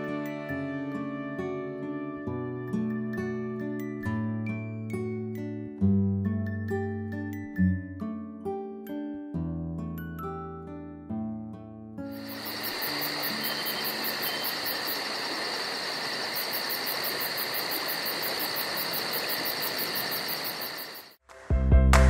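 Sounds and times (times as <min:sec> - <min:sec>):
crickets trilling: 0:12.1 - 0:21.2
fast high pulsing insect: 0:12.1 - 0:21.2
constant hiss: 0:12.2 - 0:21.2.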